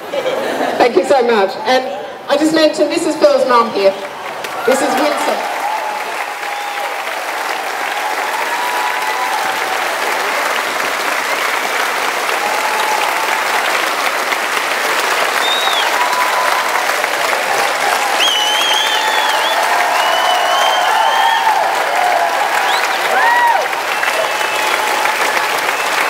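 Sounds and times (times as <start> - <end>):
crowd applauding: 3.8 - 26.0.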